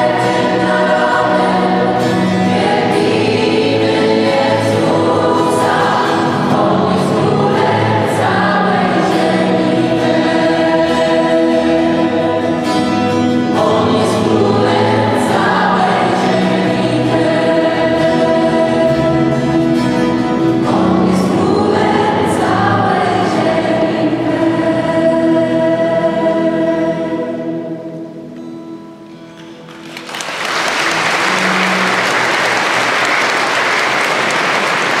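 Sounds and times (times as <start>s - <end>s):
gospel choir singing: 0.0s - 28.3s
strings accompaniment: 0.0s - 28.4s, 29.0s - 35.0s
acoustic guitar: 0.0s - 35.0s
audience applauding: 29.4s - 35.0s.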